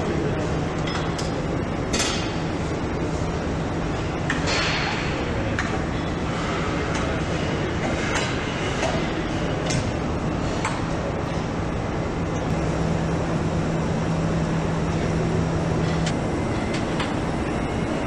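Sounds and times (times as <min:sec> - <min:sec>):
assembly-line machinery humming: 0:00.0 - 0:18.0.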